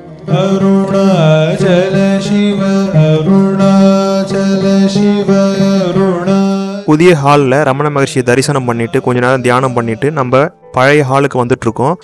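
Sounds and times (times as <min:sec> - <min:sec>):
steady drone: 0:00.0 - 0:07.2
devotional music with sliding melody: 0:00.0 - 0:12.0.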